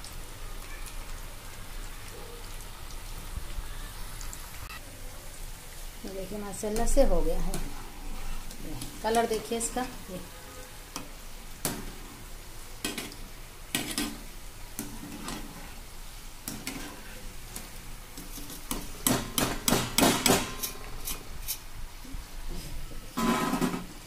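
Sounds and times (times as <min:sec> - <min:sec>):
oil sizzling: 0:00.0 - 0:24.0
metal strainer scraping a pan: 0:14.9 - 0:15.8, 0:20.4 - 0:21.6, 0:23.2 - 0:23.9.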